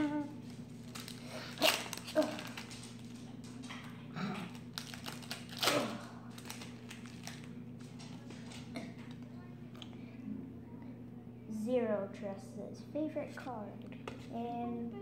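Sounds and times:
cards being handled: 0.4s - 3.6s
foil wrapper crinkling and tearing: 0.6s - 3.5s, 4.2s - 7.9s.

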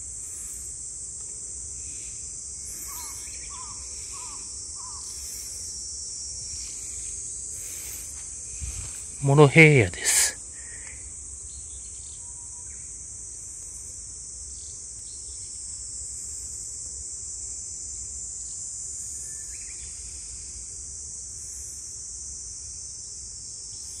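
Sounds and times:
insects shrilling: 0.0s - 14.7s.

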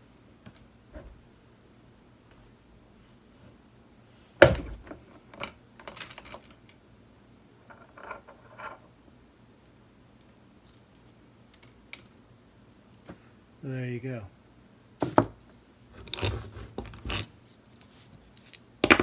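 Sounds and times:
light metal clicks and clinks: 10.2s - 12.2s.

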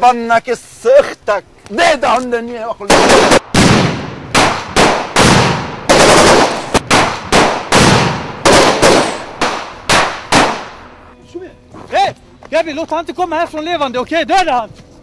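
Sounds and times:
gunshots with echo: 2.9s - 10.9s.

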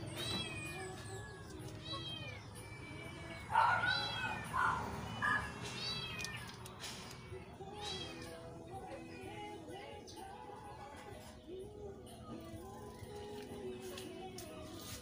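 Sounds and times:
cat meowing: 0.0s - 1.1s, 1.7s - 6.5s
faint background music: 0.0s - 15.0s.

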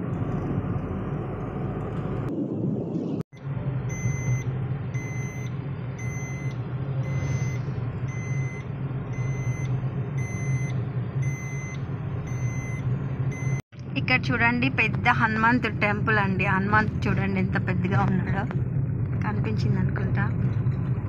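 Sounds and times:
car engine and road noise: 0.0s - 21.0s
short electronic beep: 3.3s - 13.6s.

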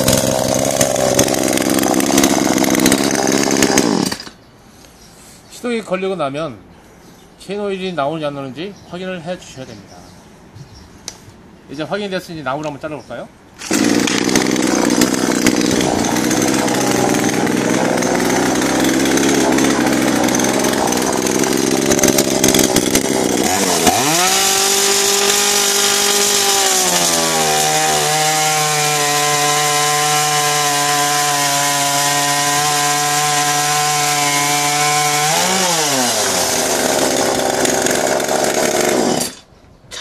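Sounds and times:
chainsaw cutting log: 0.0s - 4.4s, 13.6s - 40.0s
chainsaw running: 0.0s - 4.4s, 13.6s - 39.4s.

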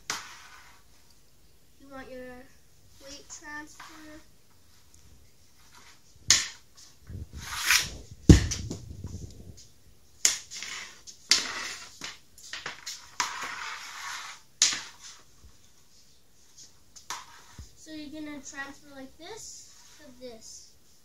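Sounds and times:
hockey stick sweeping puck on pad: 0.1s - 0.8s, 7.3s - 8.8s, 10.2s - 15.3s, 17.0s - 17.7s
pucks clacking and scraping: 0.1s - 0.8s, 3.0s - 4.1s, 5.6s - 8.8s, 10.2s - 15.3s, 17.0s - 17.6s
puck striking with heavy thud: 7.4s - 8.9s.

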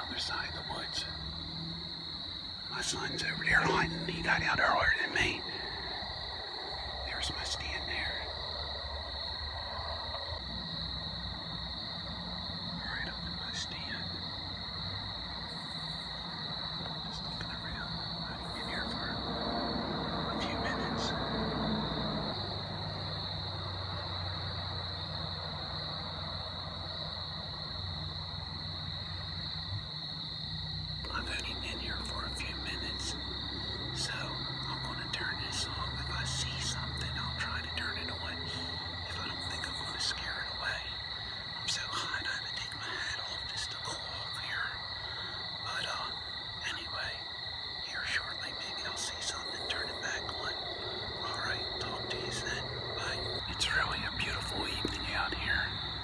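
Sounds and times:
low steady hum: 0.0s - 23.0s
insect chorus drone: 0.0s - 56.0s.

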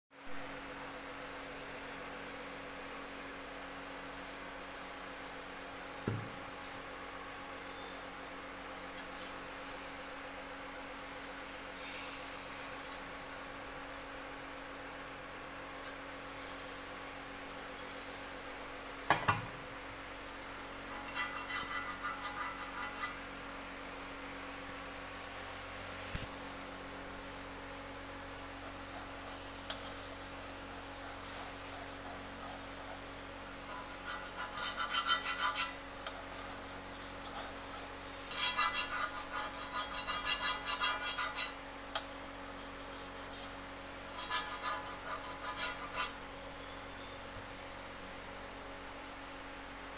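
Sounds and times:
sharp knock: 6.0s - 6.4s
fingers rasping across metal: 20.9s - 23.2s, 33.6s - 41.6s, 44.1s - 46.2s.

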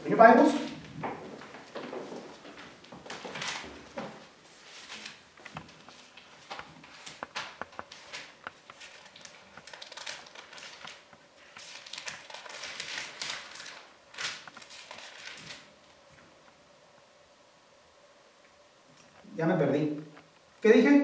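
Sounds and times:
thin pages turning: 0.6s - 16.0s.

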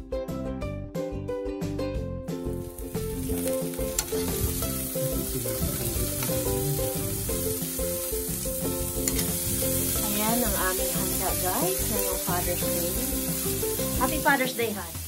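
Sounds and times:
light background music: 0.0s - 15.0s
meat sizzling on a grill: 2.5s - 15.0s
metal tongs clicking: 3.4s - 4.2s, 9.0s - 9.4s.

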